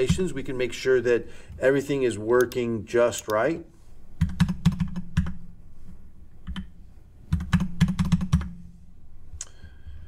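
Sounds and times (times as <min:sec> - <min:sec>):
typing on computer keyboard: 0:04.2 - 0:05.4, 0:07.3 - 0:08.5.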